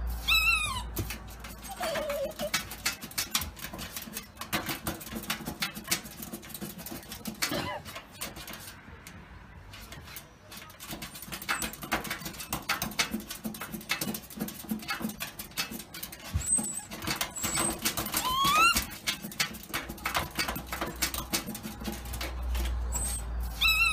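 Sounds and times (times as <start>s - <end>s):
claws scratching plastic: 0.0s - 23.9s
puppy whining: 0.1s - 3.4s, 7.4s - 8.0s, 16.1s - 19.2s, 22.8s - 23.9s.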